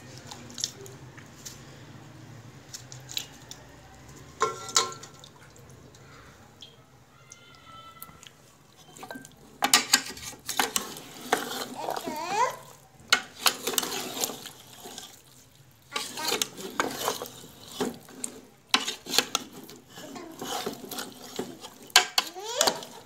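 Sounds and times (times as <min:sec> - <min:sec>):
metal spoon scraping a pot: 0:04.4 - 0:05.2, 0:08.8 - 0:15.2, 0:15.9 - 0:23.0.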